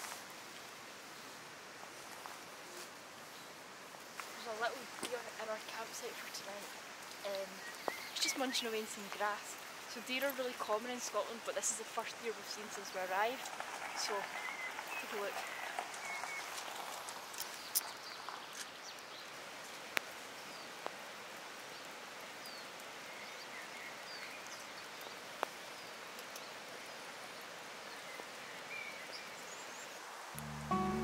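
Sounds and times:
steady rain falling: 0:00.0 - 0:31.0
birds chirping: 0:07.3 - 0:11.7, 0:12.4 - 0:16.6.

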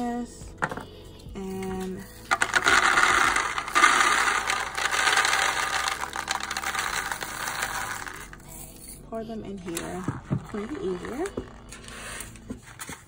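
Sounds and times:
beads pouring into bowl: 0:02.0 - 0:08.9, 0:09.6 - 0:12.4.

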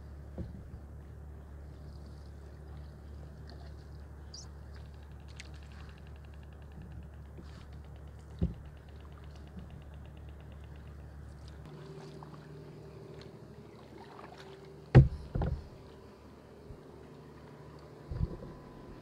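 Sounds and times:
faint fast even ticking: 0:04.3 - 0:11.6
steady low rumble: 0:14.8 - 0:19.0.

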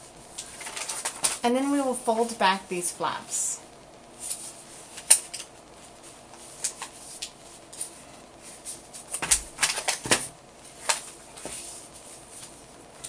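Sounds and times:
paper crinkling and rustling: 0:00.2 - 0:01.4, 0:04.2 - 0:13.0.

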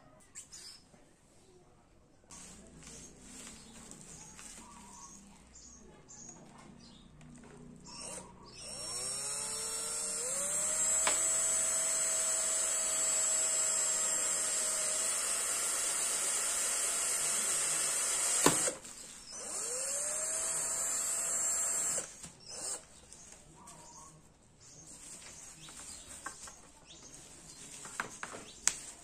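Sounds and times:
cordless drill whining: 0:07.8 - 0:22.9.

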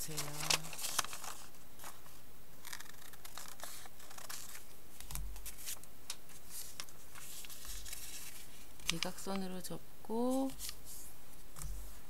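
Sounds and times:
paper rustling: 0:00.0 - 0:09.4.

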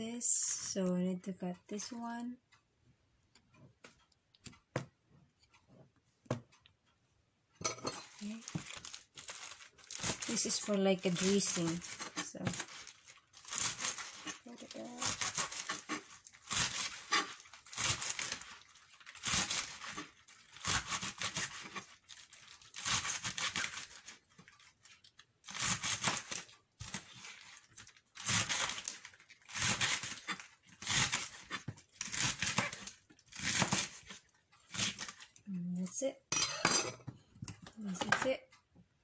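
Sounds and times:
leaves being cut on a board: 0:08.2 - 0:24.1, 0:25.4 - 0:35.2.

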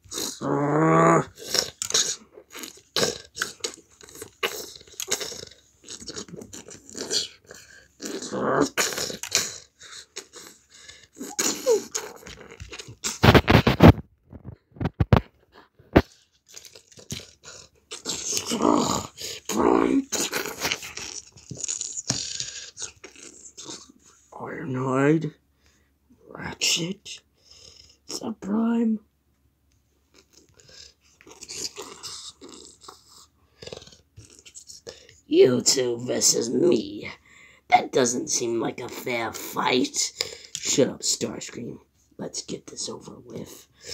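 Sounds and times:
toy figures scraping on mat: 0:11.5 - 0:15.2.

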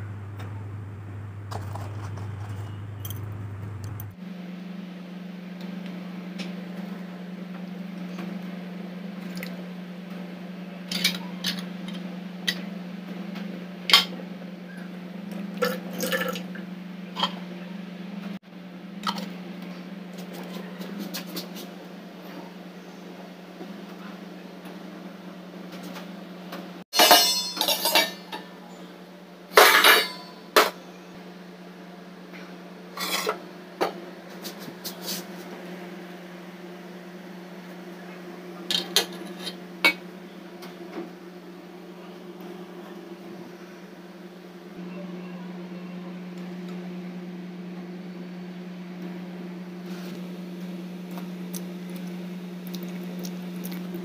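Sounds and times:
steady low hum: 0:00.0 - 0:10.9
steel dishes clinking: 0:27.0 - 0:28.4.

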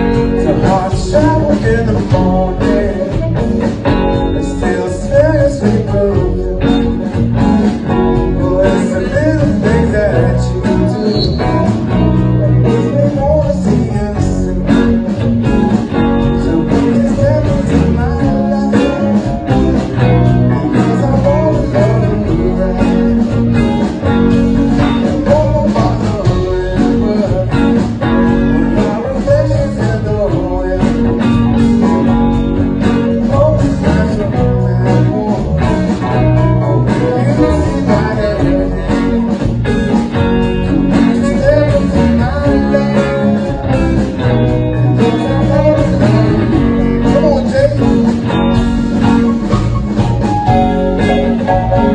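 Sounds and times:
electric guitar: 0:00.0 - 0:51.9
live blues band playing: 0:00.0 - 0:51.9.

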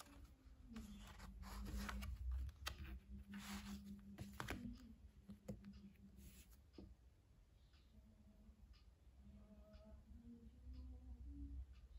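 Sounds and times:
book rustling and handling: 0:00.0 - 0:06.5.

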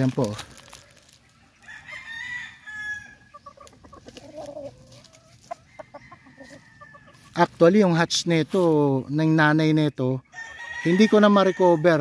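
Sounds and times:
rooster crowing: 0:01.6 - 0:03.3, 0:10.3 - 0:12.0
rooster clucking: 0:01.6 - 0:07.6.

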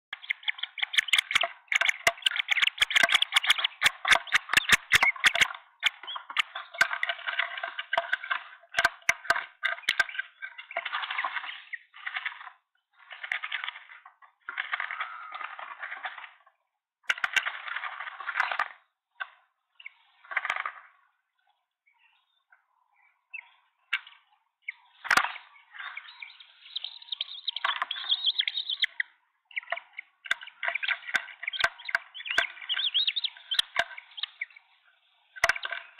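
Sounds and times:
wing-beat rustling: 0:00.8 - 0:05.5.

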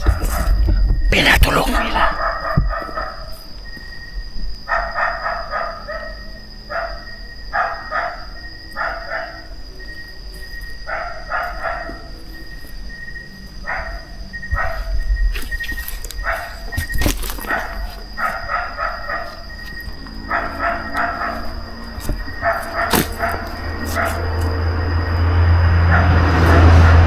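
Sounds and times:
dog barking: 0:01.8 - 0:03.4, 0:04.7 - 0:09.6, 0:10.8 - 0:12.3, 0:13.6 - 0:15.0, 0:16.2 - 0:16.8, 0:17.4 - 0:24.6, 0:25.8 - 0:26.4.

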